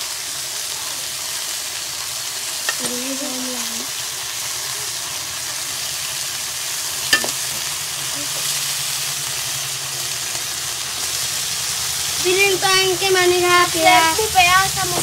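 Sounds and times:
meat sizzling in hot oil: 0.0s - 15.0s
metal spoon clinking on pot: 7.1s - 7.4s.

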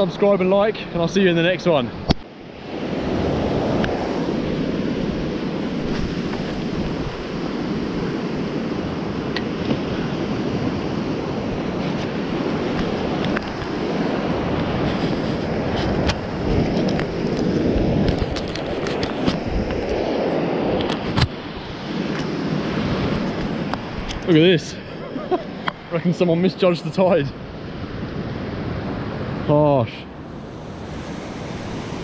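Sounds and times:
surf breaking on beach: 0.0s - 32.0s
wind on microphone: 1.9s - 26.2s.

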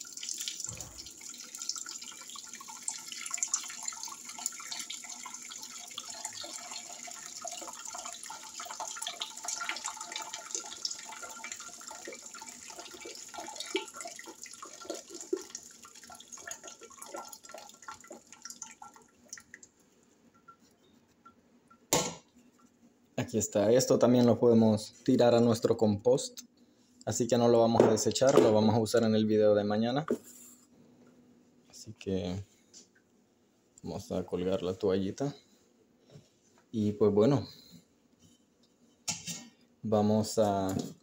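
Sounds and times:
tea pouring and trickling: 0.0s - 19.7s.

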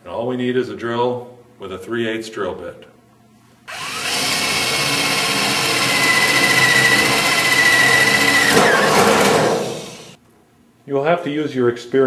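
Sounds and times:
electric drill boring through metal: 3.7s - 10.2s.

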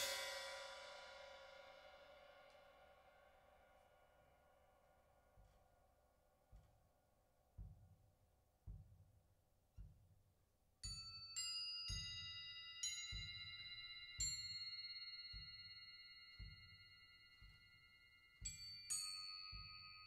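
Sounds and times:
bell-like metal percussion: 0.0s - 6.9s, 10.8s - 20.0s
soft low drum beat: 6.4s - 11.0s, 13.1s - 14.7s, 15.3s - 15.7s, 16.3s - 17.8s, 18.4s - 20.0s.

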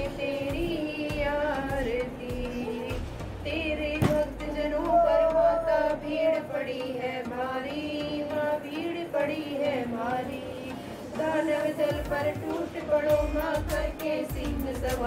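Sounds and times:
women singing devotional hymn: 0.0s - 15.0s.

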